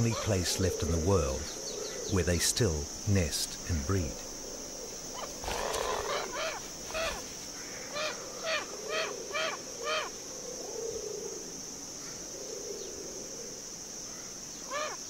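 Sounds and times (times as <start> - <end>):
high-pitched insect drone: 0.0 - 11.3
wingbeats: 5.1 - 10.1
bird harsh honking calls: 5.2 - 10.1.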